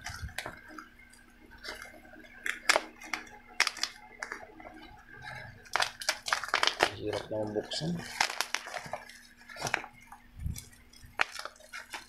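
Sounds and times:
plastic pouch crinkling: 1.6 - 4.5, 5.3 - 12.0.

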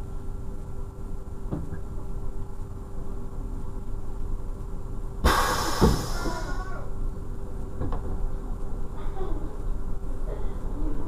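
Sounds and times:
railcar engine and wheels rumbling: 0.0 - 11.0
loud hissing: 5.2 - 6.9.

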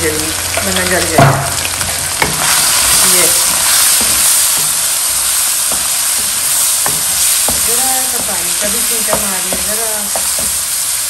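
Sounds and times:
food sizzling in hot oil: 0.0 - 11.0
spatula knocking against pan: 6.8 - 8.4, 9.0 - 10.6.

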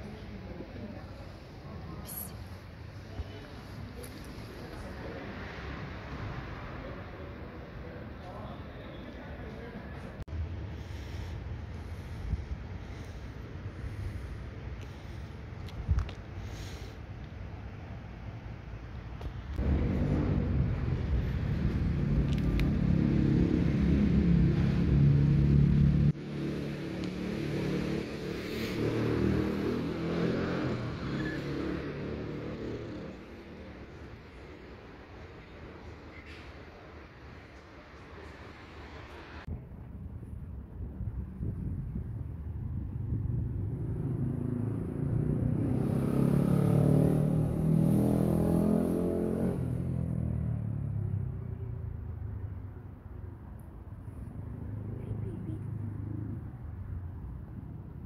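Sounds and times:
road traffic rumble: 0.0 - 58.0
vehicle engine passing: 19.6 - 34.4, 43.6 - 52.5.

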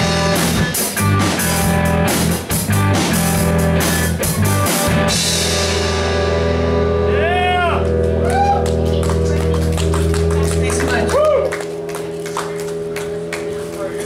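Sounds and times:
live rock band playing: 0.0 - 14.0.

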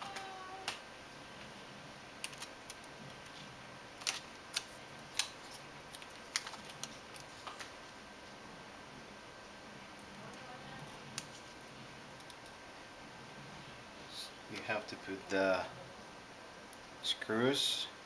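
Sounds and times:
laptop parts clicking and tapping: 2.2 - 3.4, 4.0 - 7.7.

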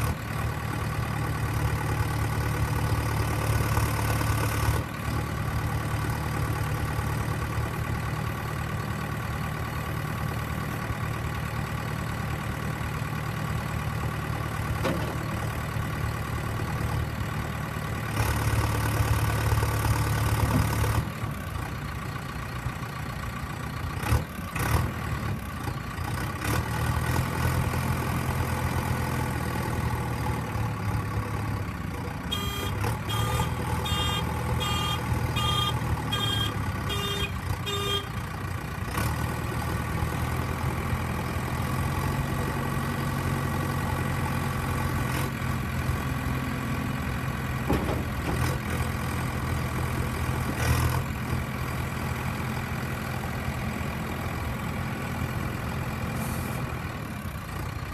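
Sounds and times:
diesel engine running: 0.0 - 57.9
reversing alarm beeping: 32.4 - 37.3.

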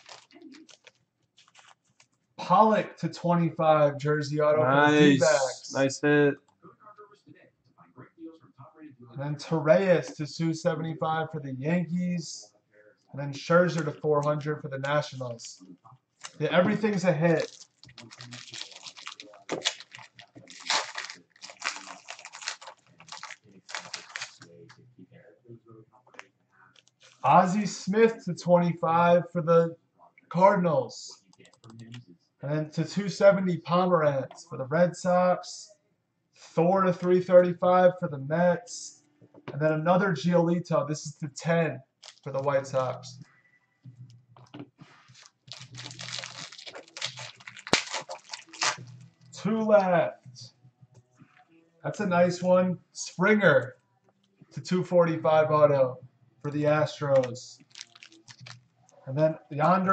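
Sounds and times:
plastic wrapper crinkling: 0.0 - 2.2, 16.2 - 24.8, 42.0 - 42.5, 45.0 - 49.2, 57.2 - 59.0.

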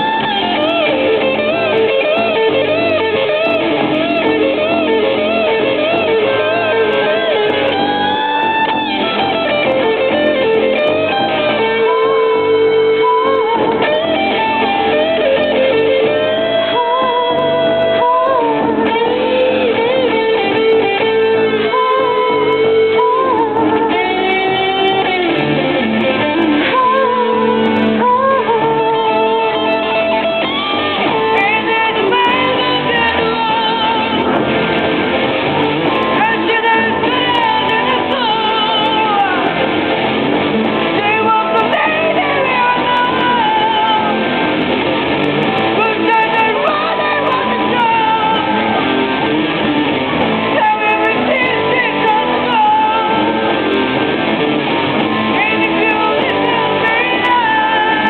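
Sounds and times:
person singing: 0.0 - 34.7, 35.8 - 39.9, 40.7 - 44.5, 45.3 - 49.1, 50.3 - 54.0, 55.0 - 58.0
strummed guitar: 0.0 - 58.0.

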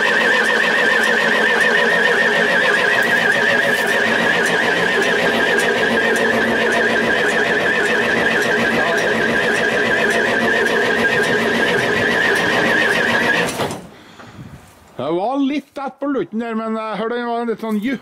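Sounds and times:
diesel engine running: 0.0 - 13.9.

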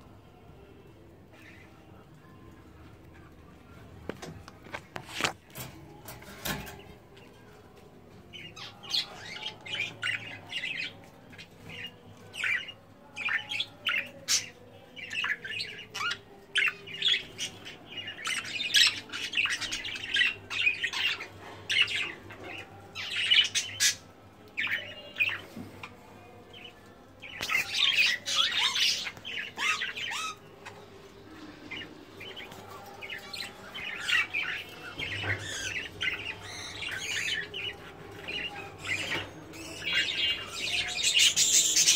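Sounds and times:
budgerigars chirping and squawking: 8.4 - 24.0, 27.2 - 30.8, 31.6 - 41.9.

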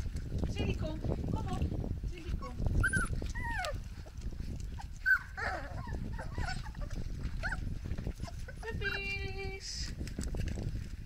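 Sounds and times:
puppies whimpering and yipping: 2.3 - 9.3.

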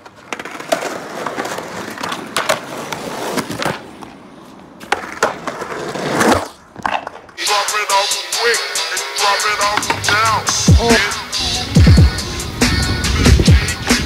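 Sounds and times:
skateboard clacks and landings: 0.0 - 4.2, 4.8 - 7.4, 9.6 - 10.7
skateboards rolling on concrete: 0.0 - 14.0
skateboard hard smack: 2.0 - 4.1
music: 7.4 - 14.0.

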